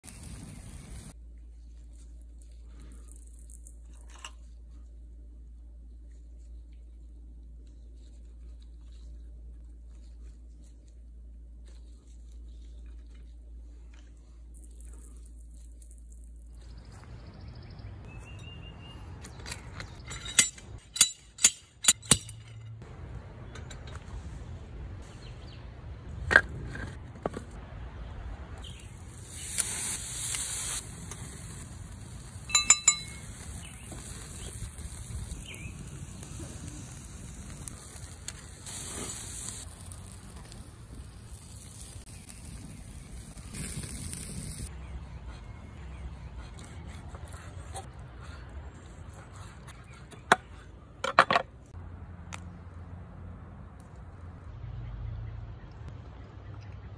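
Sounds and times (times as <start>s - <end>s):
metal tools clicking on grill: 19.2s - 22.8s, 32.5s - 33.7s
ringing metallic clink: 32.5s - 33.4s.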